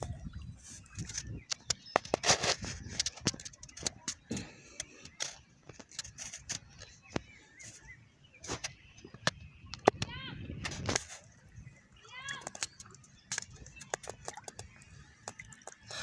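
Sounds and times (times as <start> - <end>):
water splashing and sloshing: 0.0 - 16.0
sharp clicks: 12.3 - 15.9.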